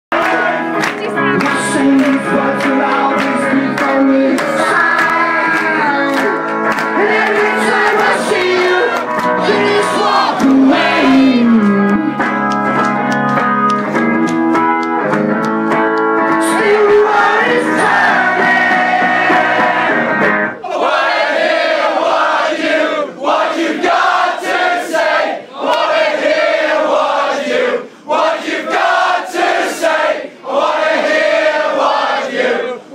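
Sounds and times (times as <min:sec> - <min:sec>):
live rock band playing: 0:00.7 - 0:20.6
male lead vocal: 0:01.0 - 0:12.1, 0:16.4 - 0:20.0
crowd shouting: 0:07.0 - 0:11.5, 0:16.6 - 0:32.9.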